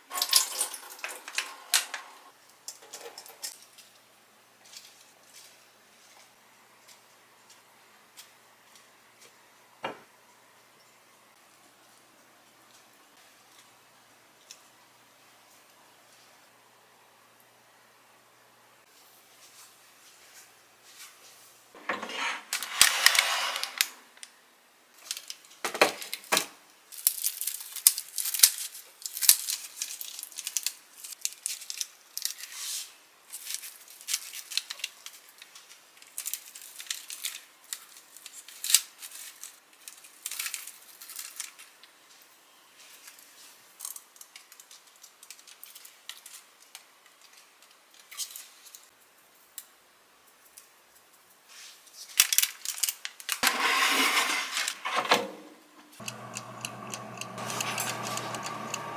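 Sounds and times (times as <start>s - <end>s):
baking paper rustling: 19.0s - 24.2s
food handling clicks and taps: 56.0s - 58.9s.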